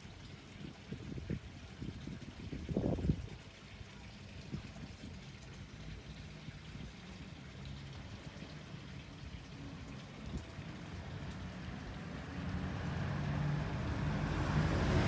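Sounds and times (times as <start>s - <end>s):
wind-like hiss: 0.6s - 3.4s.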